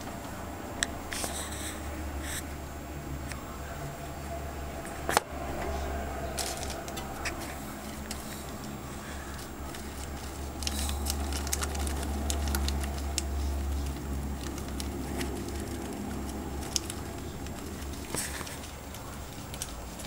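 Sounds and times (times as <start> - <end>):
low hum: 0.0 - 20.0
plastic wrapper crinkling: 5.1 - 20.0
rustling in wood shavings: 5.4 - 20.0.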